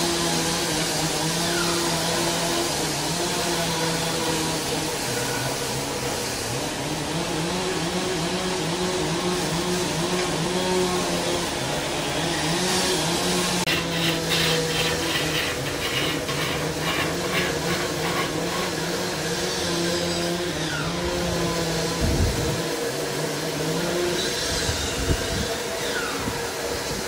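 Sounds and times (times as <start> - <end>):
steel scraper rasping wood: 0.0 - 21.6
lathe motor humming: 0.0 - 27.0.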